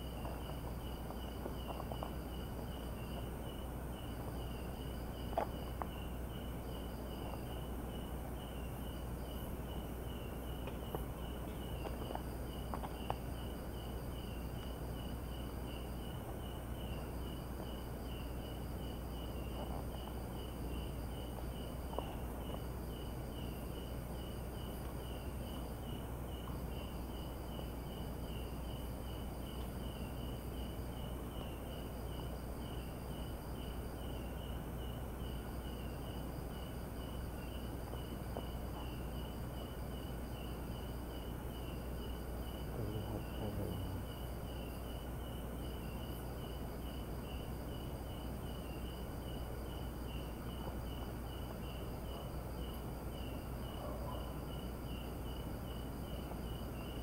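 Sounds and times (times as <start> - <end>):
crickets pulsing chirp: 0.0 - 57.0
faint ticks: 0.1 - 7.7, 10.5 - 13.9, 29.4 - 29.9.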